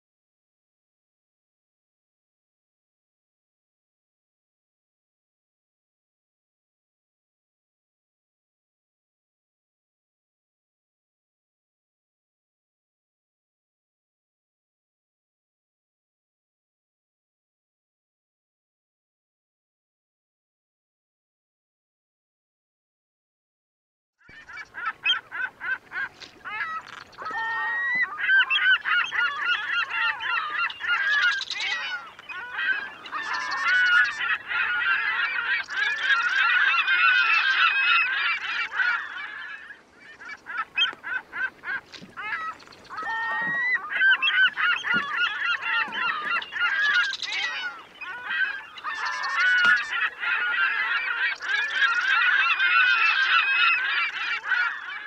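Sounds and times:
flock of birds honking: 0:24.3 - 0:55.0.

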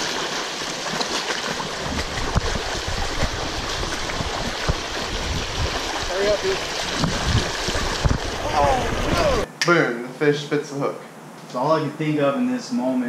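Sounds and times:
stream rushing over rocks: 0:00.0 - 0:09.5
low thumps: 0:06.9 - 0:09.5.

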